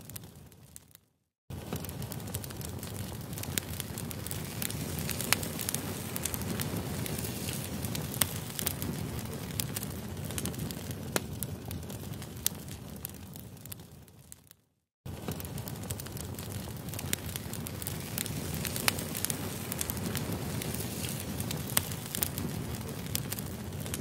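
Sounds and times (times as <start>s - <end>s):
steady crackling: 15.4s - 24.0s.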